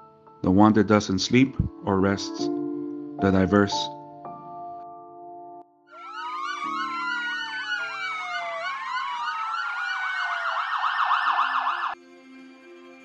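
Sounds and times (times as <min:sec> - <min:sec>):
emergency sirens wailing and yelping: 0:05.9 - 0:12.0
ambient music drone: 0:06.0 - 0:10.5, 0:11.8 - 0:13.0.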